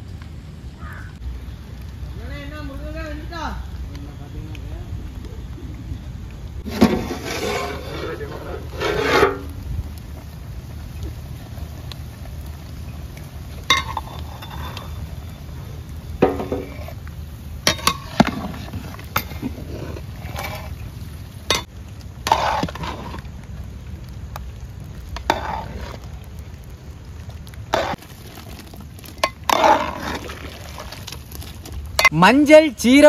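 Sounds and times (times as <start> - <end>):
ladle knocking and scraping pot: 6.7 - 9.5, 13.6 - 15.0, 16.2 - 17.0, 17.6 - 20.8.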